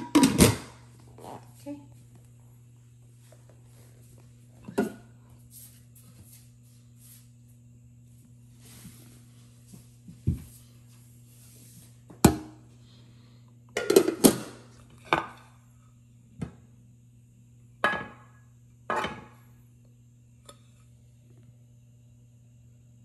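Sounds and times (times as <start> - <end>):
pots and lids clinking: 0.0 - 0.7, 13.8 - 15.4, 17.8 - 18.3, 18.9 - 19.3
steady low hum: 0.0 - 23.0.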